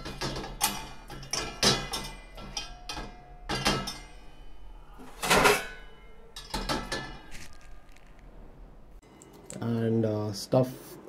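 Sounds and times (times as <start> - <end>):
metal plates clanking in dish rack: 0.0 - 8.2.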